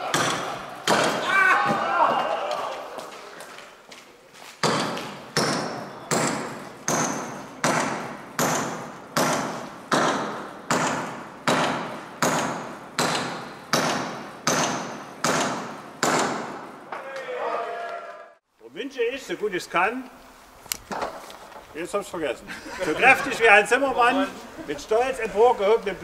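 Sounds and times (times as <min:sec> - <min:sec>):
hammer driving nail into wood: 0:04.6 - 0:16.7.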